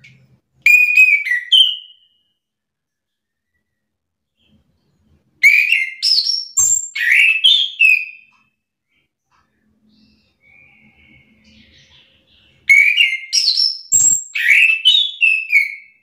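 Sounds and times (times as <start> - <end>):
thrush whistled song: 0.6 - 2.5, 5.4 - 8.4, 9.9 - 11.9, 12.6 - 16.0.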